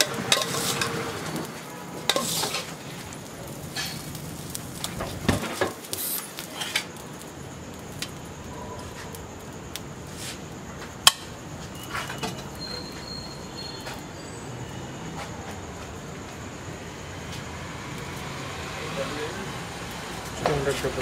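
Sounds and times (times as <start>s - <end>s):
spatula clinking on steel plates: 0.0s - 1.0s, 2.1s - 2.7s
steady background hiss: 0.0s - 21.0s.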